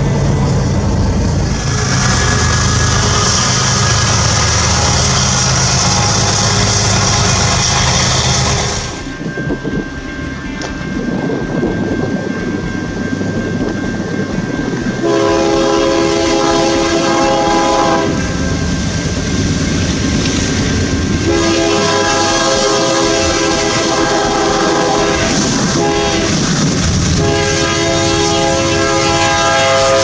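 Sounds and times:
train rumble: 0:00.0 - 0:30.0
locomotive air horn blasts: 0:01.5 - 0:09.0, 0:15.0 - 0:18.4, 0:21.2 - 0:26.5, 0:27.2 - 0:30.0.

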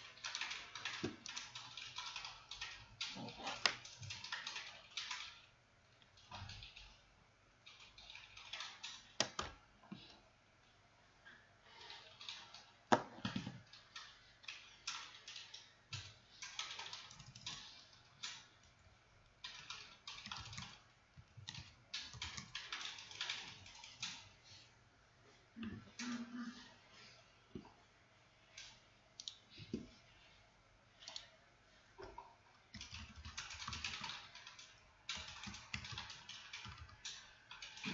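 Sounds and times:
keyboard typing: 0:00.0 - 0:05.5, 0:06.2 - 0:07.0, 0:07.6 - 0:10.2, 0:11.7 - 0:24.4, 0:28.5 - 0:29.9, 0:32.0 - 0:37.9.

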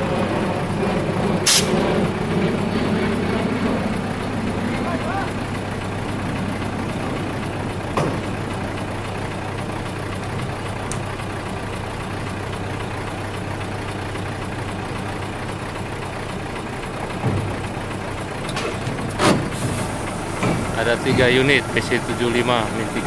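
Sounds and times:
diesel engine idling: 0:00.0 - 0:23.0.

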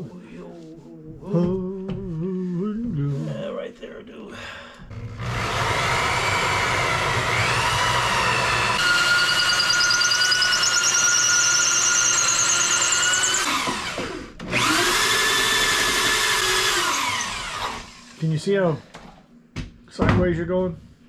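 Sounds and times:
electric drill cutting wood: 0:04.9 - 0:18.2.

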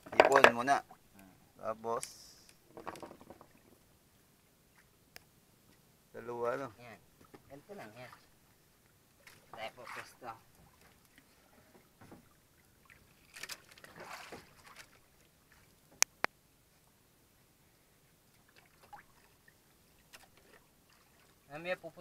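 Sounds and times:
water sloshing around boat: 0:07.0 - 0:16.0, 0:18.1 - 0:22.0.

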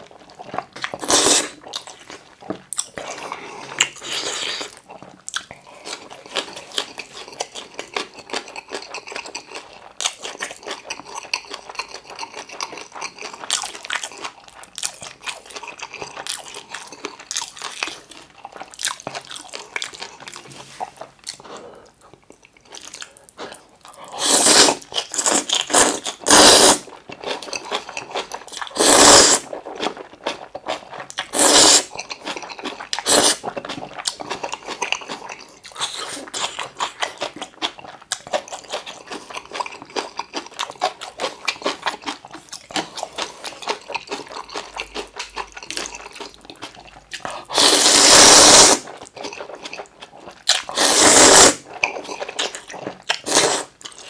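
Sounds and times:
wet chewing and crunching: 0:00.0 - 0:54.0
noodle slurps: 0:01.0 - 0:01.6, 0:24.1 - 0:26.9, 0:28.6 - 0:29.6, 0:31.2 - 0:32.3, 0:33.0 - 0:33.6, 0:47.3 - 0:49.6, 0:50.5 - 0:53.8.

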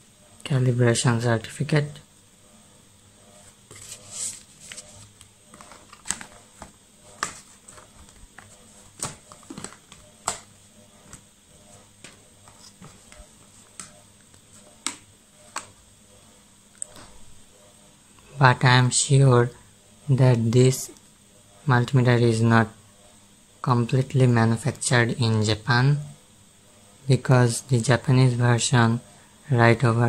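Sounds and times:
paper and card rustling: 0:03.4 - 0:15.8.

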